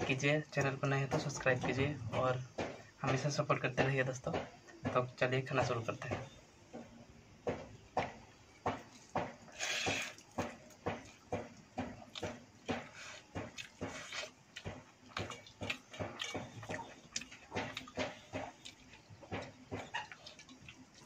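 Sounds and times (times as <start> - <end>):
soaked rice squelching: 8.9 - 21.0
wet chewing and lip-smacking: 9.5 - 21.0.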